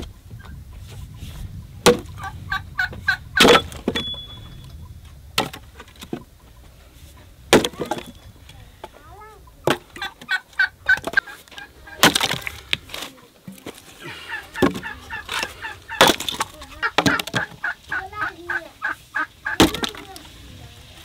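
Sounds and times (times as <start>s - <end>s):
chickens clucking: 0.0s - 21.0s
axe chopping wood: 1.8s - 2.1s, 3.4s - 4.1s, 7.5s - 8.2s, 12.0s - 12.6s, 16.0s - 17.6s
wood cracking apart: 12.0s - 13.8s, 14.6s - 17.4s.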